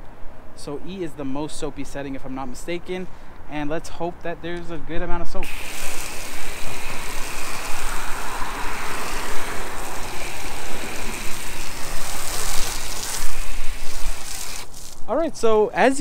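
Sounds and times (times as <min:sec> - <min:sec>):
foam gun spraying: 0:05.4 - 0:15.0.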